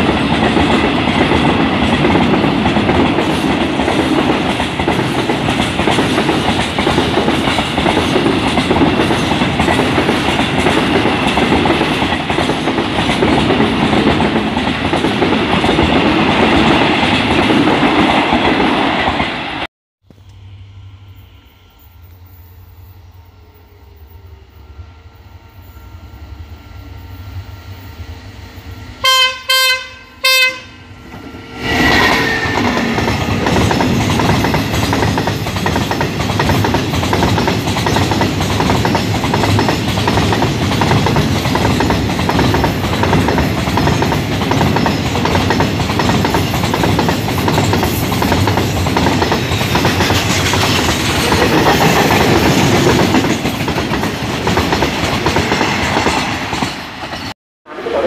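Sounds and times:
wheels clacking over rail joints: 0:00.0 - 0:19.3, 0:32.6 - 0:57.3
locomotive horn blasts: 0:29.0 - 0:31.1.

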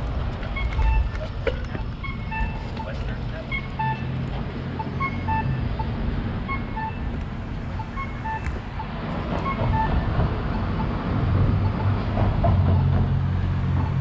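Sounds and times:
vehicle engine rumble: 0:00.0 - 0:14.0
short electronic beeps: 0:04.8 - 0:07.1, 0:07.7 - 0:10.1.

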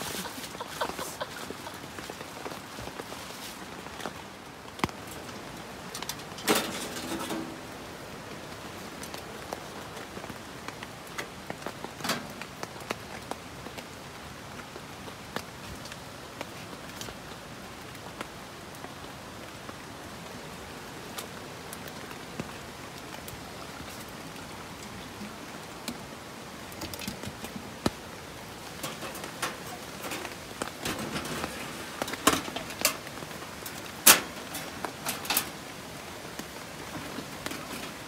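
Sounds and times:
steady rain: 0:00.0 - 0:38.0.

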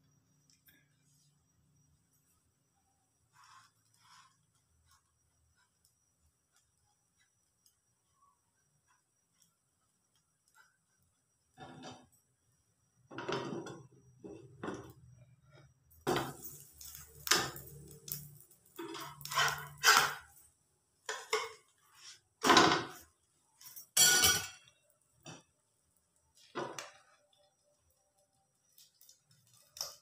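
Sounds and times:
cookware clinking and clattering: 0:21.1 - 0:21.7, 0:23.8 - 0:24.7.

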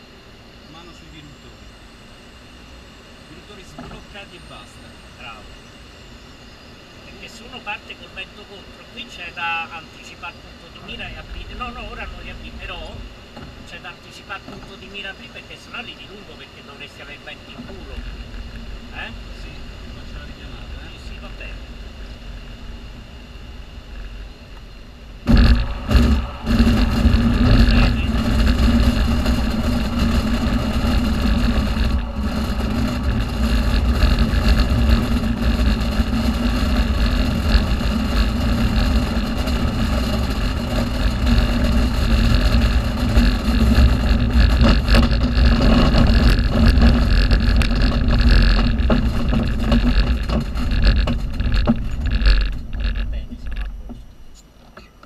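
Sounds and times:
wheel rumbling over grass: 0:10.6 - 0:24.4, 0:25.1 - 0:54.3.

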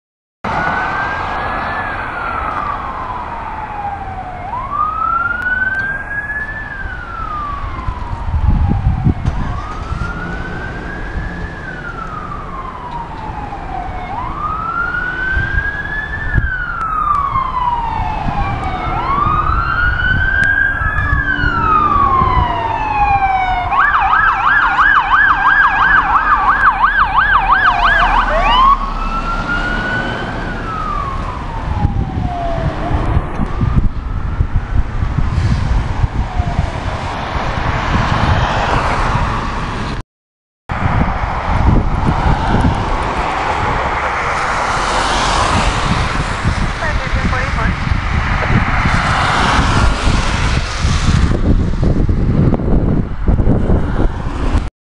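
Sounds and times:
fire engine siren wailing: 0:00.5 - 0:39.5, 0:40.7 - 0:53.8
siren fast yelp: 0:00.6 - 0:33.1.

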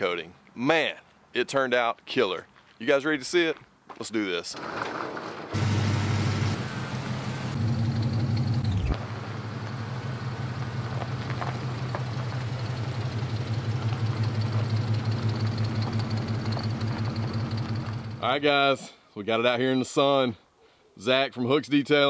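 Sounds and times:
pickup truck engine idling: 0:05.6 - 0:18.2.

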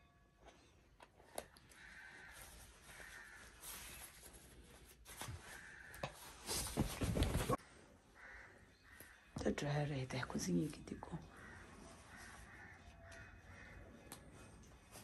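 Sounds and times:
fabric rustling and handling: 0:01.8 - 0:07.6.

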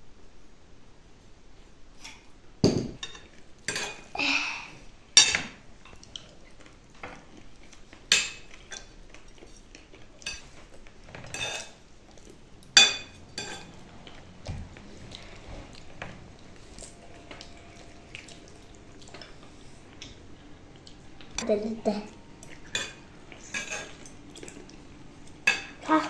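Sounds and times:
cutlery clinking on plates: 0:08.1 - 0:11.8, 0:12.7 - 0:13.8, 0:22.4 - 0:24.6.

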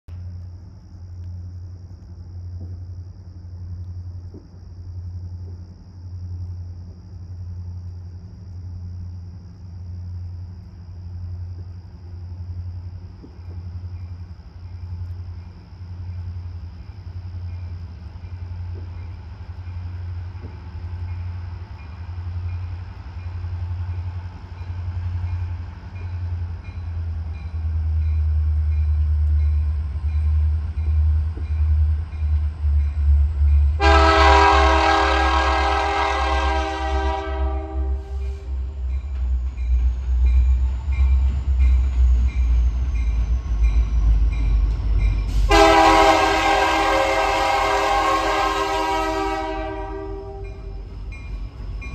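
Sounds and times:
diesel locomotive engine rumble: 0:00.0 - 0:51.9
locomotive air horn chord: 0:33.8 - 0:38.6, 0:45.3 - 0:50.8.

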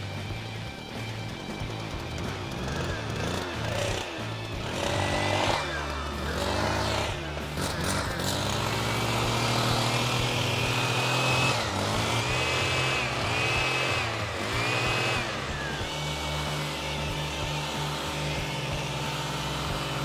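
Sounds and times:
hedge trimmer engine running: 0:00.0 - 0:20.0.

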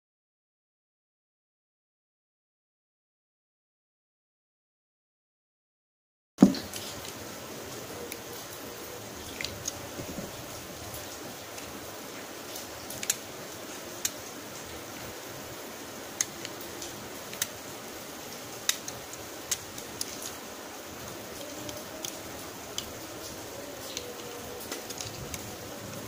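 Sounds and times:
steady hiss: 0:06.4 - 0:26.0.

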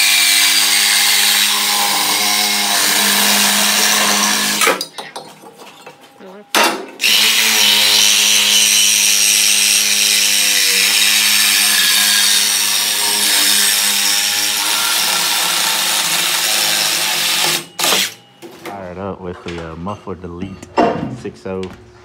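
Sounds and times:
power tool cutting steel pipe: 0:00.0 - 0:04.8, 0:07.0 - 0:18.2.

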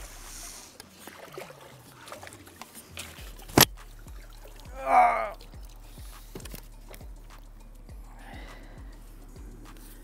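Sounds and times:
faint water splashing: 0:00.0 - 0:07.4.

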